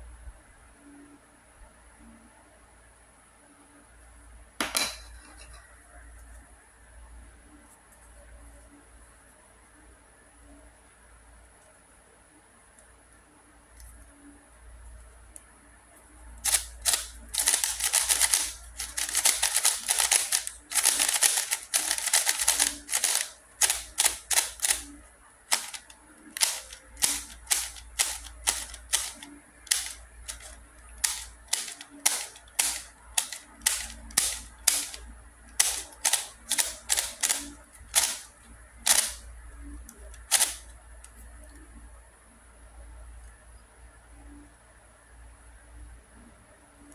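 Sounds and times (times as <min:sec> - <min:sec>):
puzzle cube layers clacking: 0:16.5 - 0:24.9, 0:25.5 - 0:39.2, 0:40.0 - 0:40.6.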